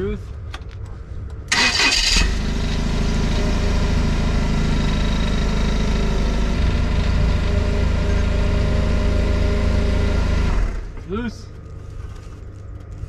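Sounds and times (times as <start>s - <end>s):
forklift engine starting and idling: 1.5s - 11.1s.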